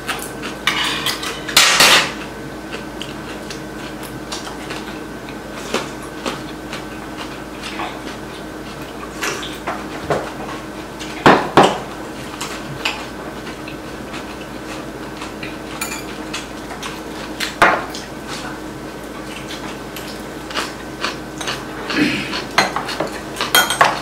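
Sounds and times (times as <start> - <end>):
cutlery clinking on ceramic bowls: 15.8 - 16.1, 22.6 - 24.0.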